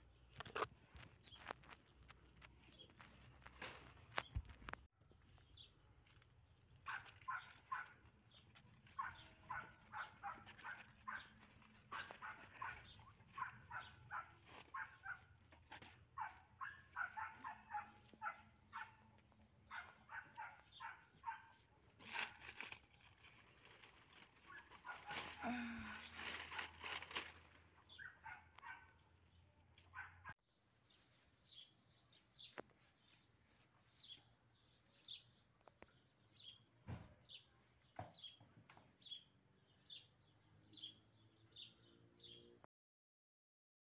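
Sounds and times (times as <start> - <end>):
dog barking: 6.8 - 8.0, 9.0 - 15.3, 16.2 - 19.1, 19.7 - 21.6, 24.5 - 25.4, 27.9 - 29.0, 29.9 - 30.4
rustling noise: 21.9 - 27.8.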